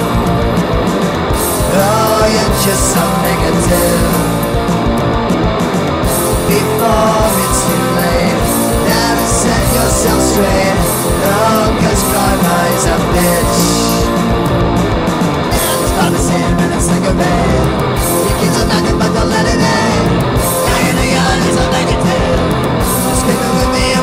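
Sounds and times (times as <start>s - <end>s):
punk rock band playing: 0.0s - 24.0s
person singing: 1.4s - 4.7s, 6.1s - 14.4s, 15.5s - 24.0s.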